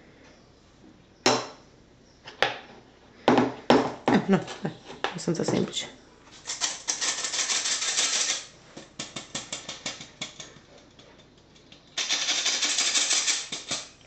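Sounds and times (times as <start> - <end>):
spoon scraping mesh: 6.4 - 8.5, 12.0 - 14.0
flour sifting through metal sieve: 12.0 - 14.0.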